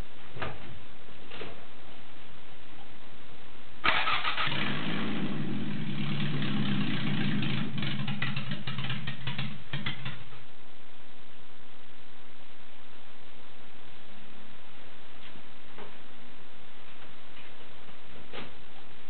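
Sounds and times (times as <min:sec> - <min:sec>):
engine crackles: 0:03.8 - 0:10.3
car engine running: 0:04.5 - 0:10.3.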